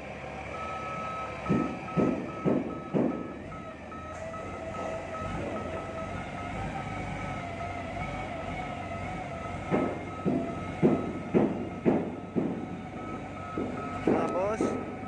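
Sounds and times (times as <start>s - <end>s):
forklift engine running: 0.0s - 15.0s
forklift reversing alarm beeping: 0.1s - 15.0s
heavy clunks: 1.4s - 3.5s, 9.6s - 15.0s.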